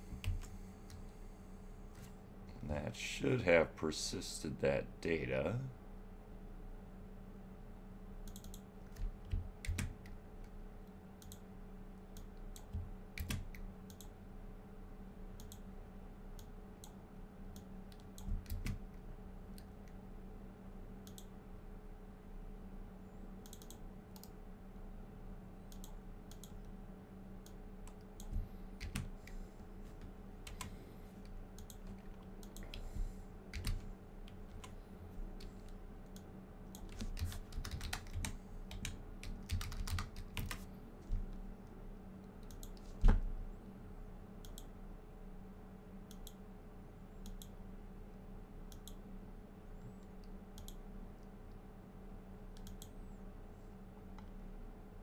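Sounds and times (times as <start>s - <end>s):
steady low hum: 0.0s - 55.0s
typing on a keyboard: 8.3s - 10.2s, 36.7s - 40.6s.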